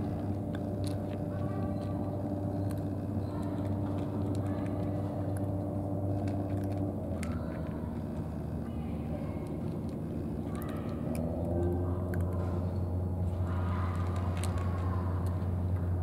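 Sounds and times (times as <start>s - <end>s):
cat eating from plastic tray: 0.0s - 16.0s
low engine drone: 0.0s - 16.0s.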